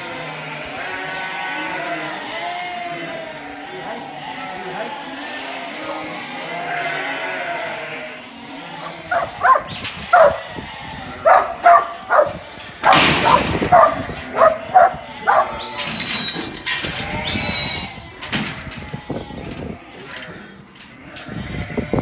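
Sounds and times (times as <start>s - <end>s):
dog barking: 9.1s - 10.4s, 11.2s - 15.6s.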